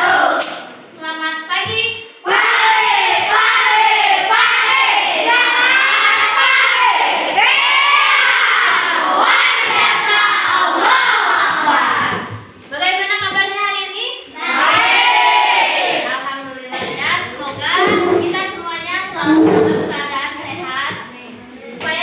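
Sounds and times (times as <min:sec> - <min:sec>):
children chanting in unison: 0:00.0 - 0:00.5, 0:02.2 - 0:12.4, 0:14.4 - 0:16.1.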